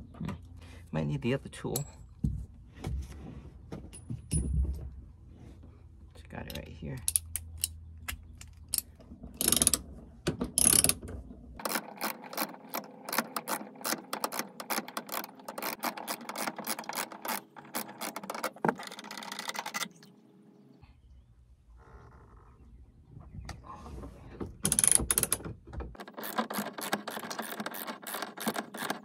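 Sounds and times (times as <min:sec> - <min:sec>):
ratchet wrench clicking: 0:07.0 - 0:07.8, 0:08.7 - 0:09.8, 0:10.6 - 0:11.0, 0:24.7 - 0:25.4.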